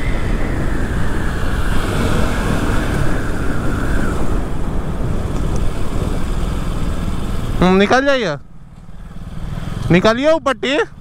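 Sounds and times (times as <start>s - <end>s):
wind rushing over microphone: 0.0s - 7.9s
motorcycle engine and tyres: 0.0s - 11.0s.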